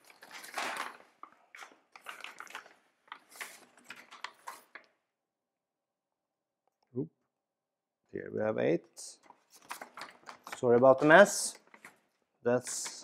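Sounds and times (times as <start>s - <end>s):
plastic foil bag crinkling: 0.0s - 4.9s.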